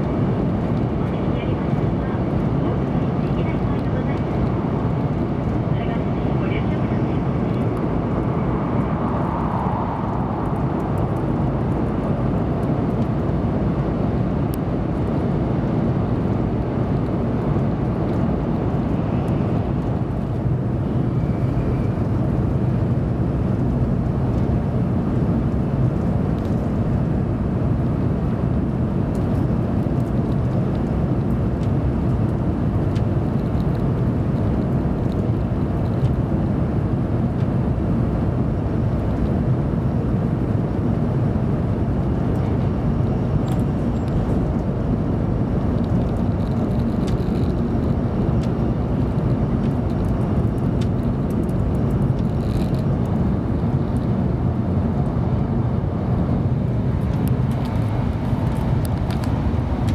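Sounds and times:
train cabin running rumble and hiss: 0.9s - 7.8s.

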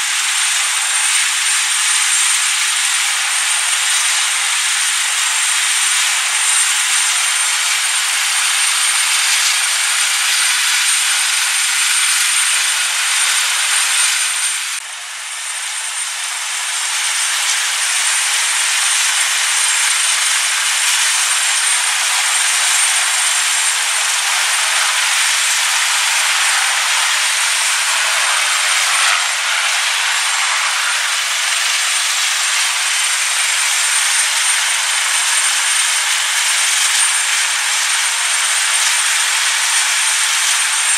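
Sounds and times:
helicopter rotors and engines: 0.0s - 40.9s
high turbine whine: 0.0s - 40.9s.

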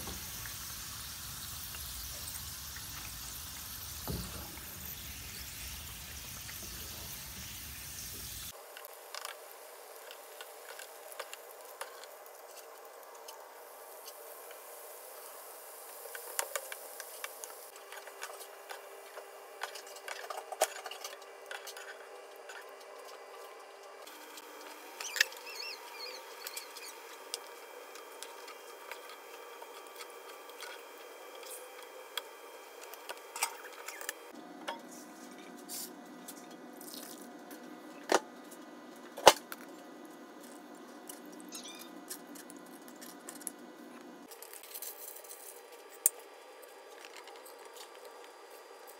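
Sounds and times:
onions sizzling in hot oil: 0.0s - 12.4s, 13.3s - 18.6s.

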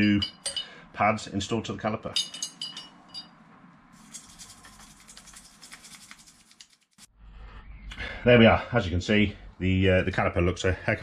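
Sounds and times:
light metal clinks: 0.0s - 0.8s, 2.1s - 3.3s
brush scratching metal: 4.0s - 7.1s.

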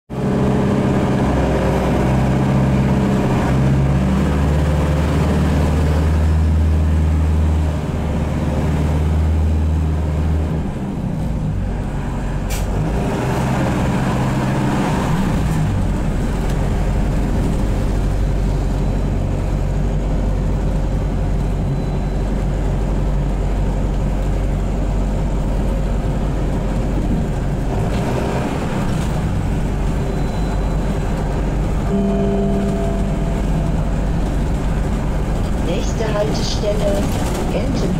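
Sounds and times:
diesel engine drone: 0.1s - 37.9s.

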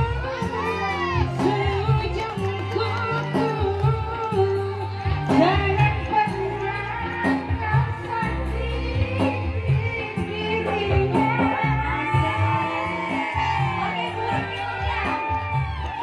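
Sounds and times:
live band through a pa: 0.0s - 16.0s
woman singing into a microphone: 0.0s - 16.0s.

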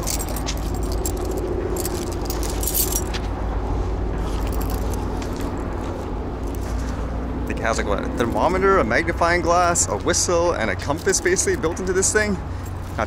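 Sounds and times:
keys jangling on keyring: 0.0s - 3.2s, 4.3s - 5.7s, 10.8s - 13.0s
steady low rumble: 0.0s - 13.0s.

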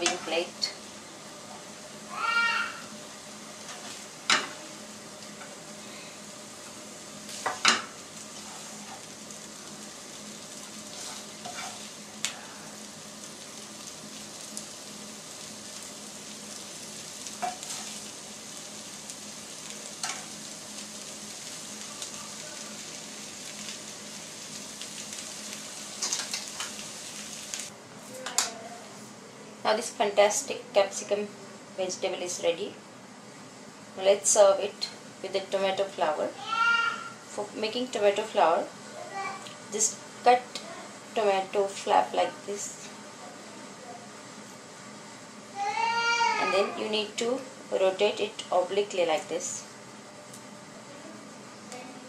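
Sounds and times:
faint sizzle: 0.0s - 52.0s
spoon scraping a frying pan: 10.9s - 11.9s, 17.4s - 18.0s.

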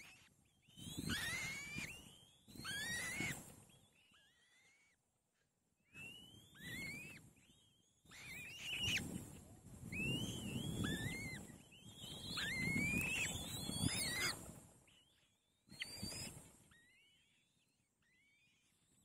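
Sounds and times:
nestlings whistled begging calls: 0.0s - 5.0s, 5.8s - 18.7s.

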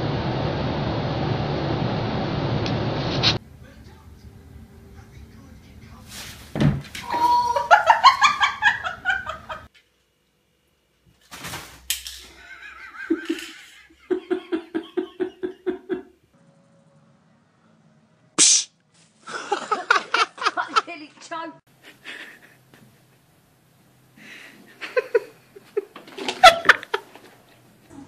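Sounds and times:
person laughing: 7.1s - 9.7s, 12.3s - 16.2s, 19.3s - 21.0s, 24.7s - 27.1s
brief sharp noise: 18.4s - 18.8s.

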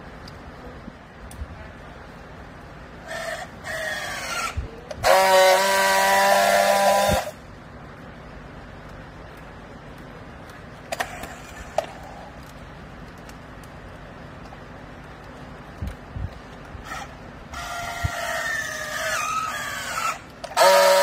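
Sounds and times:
strapping tool loud buzz: 3.1s - 7.4s, 19.0s - 21.0s.

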